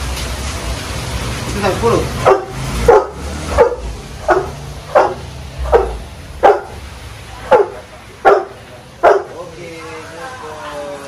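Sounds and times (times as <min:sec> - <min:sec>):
dog barking: 0:02.2 - 0:06.8, 0:07.4 - 0:09.4.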